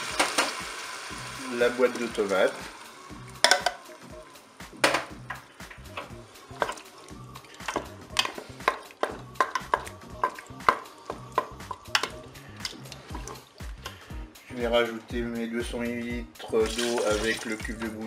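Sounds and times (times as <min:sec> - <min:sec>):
light sizzle: 0:00.0 - 0:09.5.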